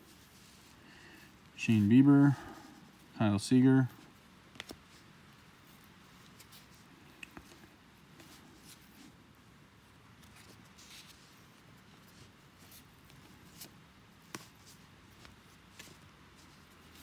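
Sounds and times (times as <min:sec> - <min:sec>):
trading cards rustling and ticking: 0:03.6 - 0:09.2.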